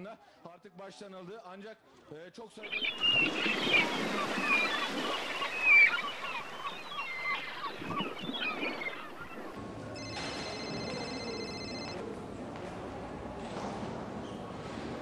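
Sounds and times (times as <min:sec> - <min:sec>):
birds squawking: 0:02.6 - 0:09.6
phone ringing: 0:10.0 - 0:12.0.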